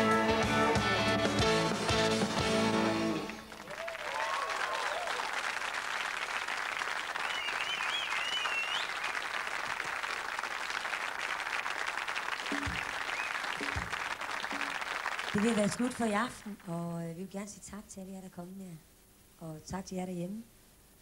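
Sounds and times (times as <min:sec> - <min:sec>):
rock band chord: 0:00.0 - 0:03.6
audience applause: 0:00.7 - 0:16.5
person cheering: 0:03.6 - 0:05.3
person whistling: 0:07.3 - 0:08.9, 0:12.6 - 0:13.8.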